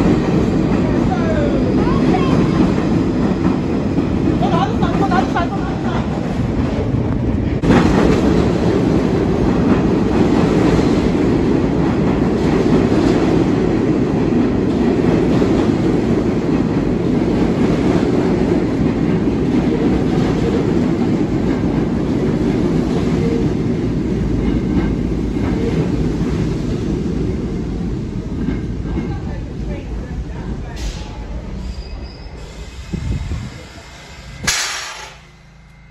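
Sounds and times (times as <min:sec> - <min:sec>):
subway train wheels rumbling: 0:00.0 - 0:35.9.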